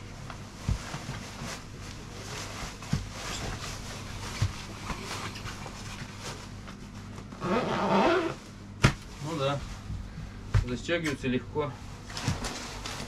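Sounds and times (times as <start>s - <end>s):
faint steady hum: 0.0s - 13.0s
fabric rustling: 0.1s - 10.0s
soft low thumps: 9.7s - 10.9s.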